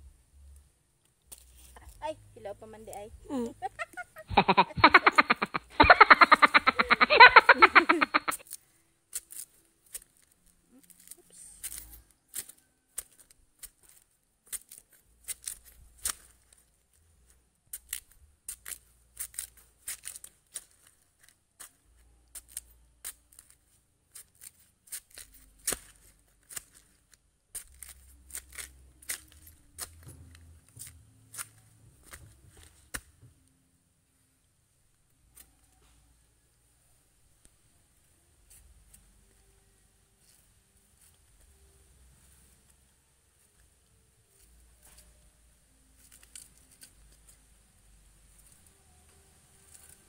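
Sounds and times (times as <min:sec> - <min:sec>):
dry sheaths tearing: 0:07.8 - 0:16.8, 0:17.7 - 0:21.8, 0:22.4 - 0:30.1, 0:46.0 - 0:47.4.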